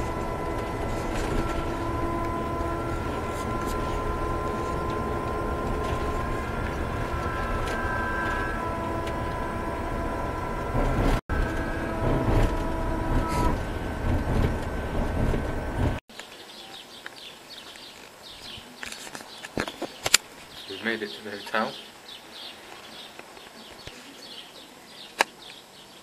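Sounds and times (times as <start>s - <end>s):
faint steady tones: 0.0s - 16.0s
engine and road noise inside coach: 0.0s - 16.1s.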